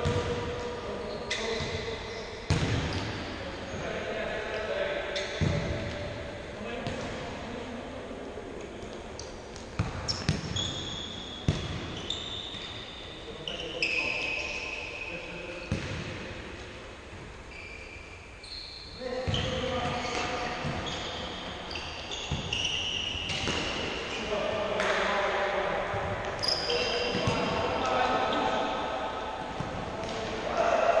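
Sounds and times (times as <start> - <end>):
sports shoes squeaking: 1.0 - 3.9, 5.2 - 5.7, 8.9 - 15.9, 17.4 - 24.4, 26.2 - 28.7.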